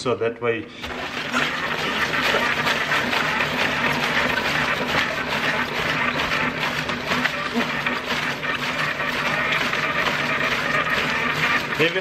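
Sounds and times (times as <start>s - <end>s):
rotary slicer shredding cabbage: 0.8s - 12.0s.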